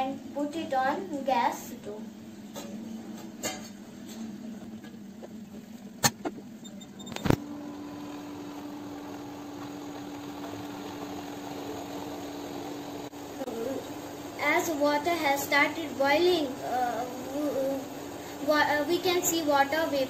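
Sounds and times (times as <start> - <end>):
cooktop humming: 0.0 - 20.0.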